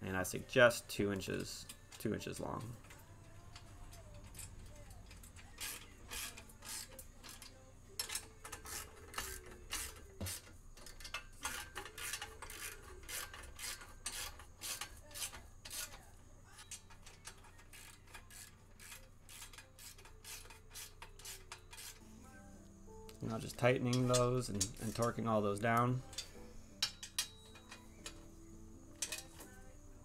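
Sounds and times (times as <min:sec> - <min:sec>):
ratchet wrench clicking: 0:02.6 - 0:22.0, 0:29.0 - 0:29.6.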